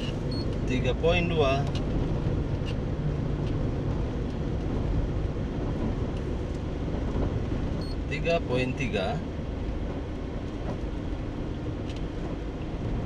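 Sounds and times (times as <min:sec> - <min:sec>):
car engine and tyre noise: 0:00.0 - 0:13.0.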